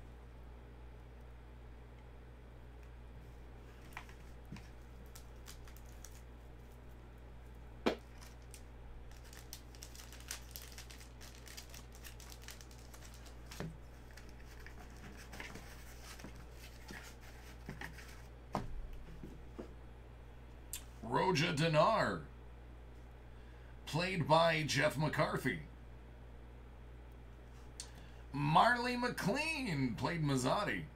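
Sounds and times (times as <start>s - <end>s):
plastic sleeves crinkling: 3.7s - 7.0s, 7.9s - 18.3s.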